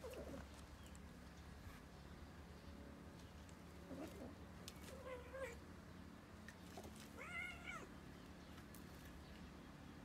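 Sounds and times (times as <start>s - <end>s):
cat meowing: 7.2s - 7.9s.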